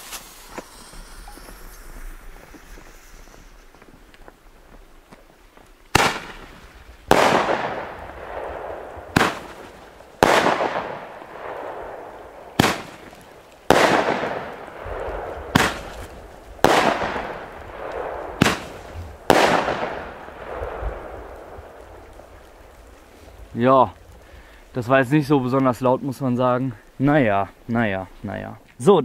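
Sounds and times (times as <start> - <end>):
roman candle launch crack: 0.0 - 4.2, 5.9 - 25.8.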